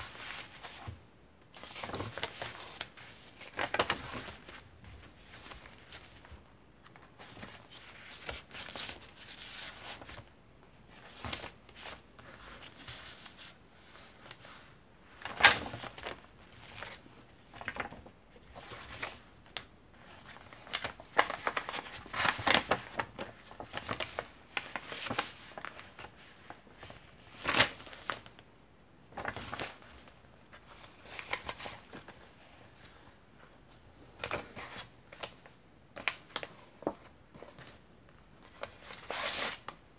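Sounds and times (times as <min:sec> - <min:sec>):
paper pages rustling: 0:00.0 - 0:10.3, 0:10.9 - 0:28.4, 0:29.1 - 0:39.8
page flips: 0:01.6 - 0:10.2, 0:18.6 - 0:28.3.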